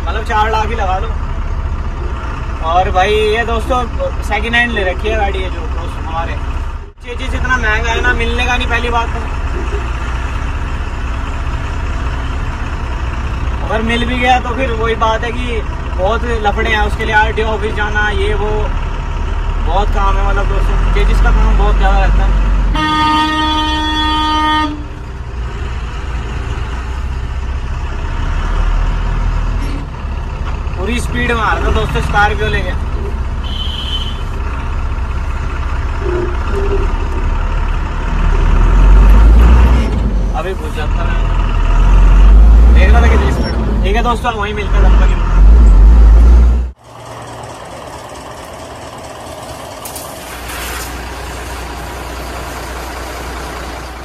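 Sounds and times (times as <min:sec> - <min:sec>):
truck diesel engine rumble: 0:00.0 - 0:54.0
pressure washer spraying: 0:49.8 - 0:52.9.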